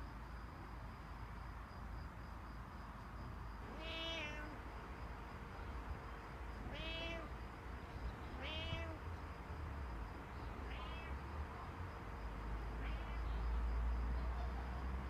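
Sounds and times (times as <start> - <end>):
cat meowing: 3.7 - 4.6, 6.6 - 7.3, 8.3 - 9.0, 10.6 - 11.2, 12.7 - 13.4.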